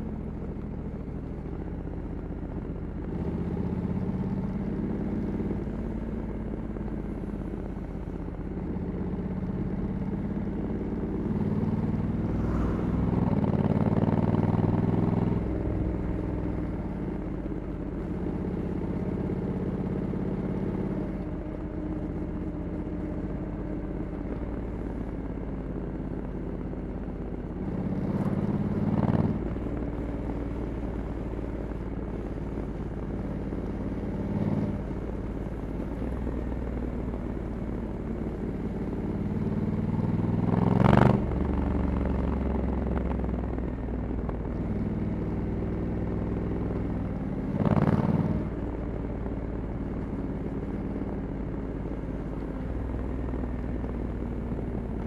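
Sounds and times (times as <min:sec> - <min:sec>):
motorcycle engine revving: 0:09.1 - 0:17.1, 0:27.6 - 0:29.7, 0:38.2 - 0:43.3, 0:44.5 - 0:49.2.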